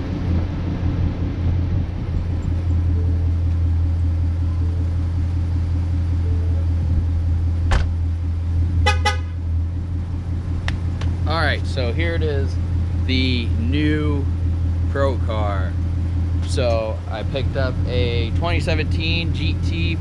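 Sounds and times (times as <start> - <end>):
low rumble: 0.0 - 20.0
car horn chirps: 8.8 - 9.4.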